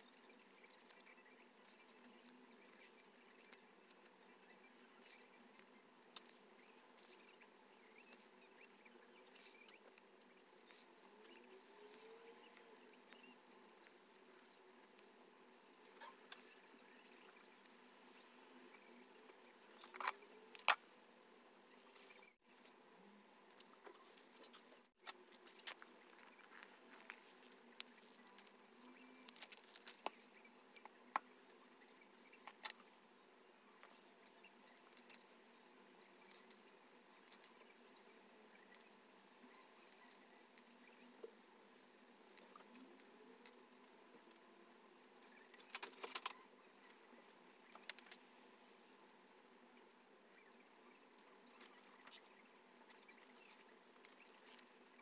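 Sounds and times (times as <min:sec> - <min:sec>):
needle and thread scratching cloth: 0:21.9 - 0:32.9.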